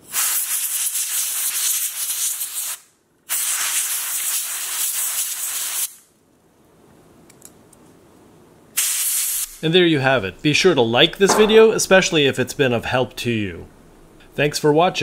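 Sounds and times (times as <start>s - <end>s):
compressed air hissing bursts: 8.8s - 9.6s.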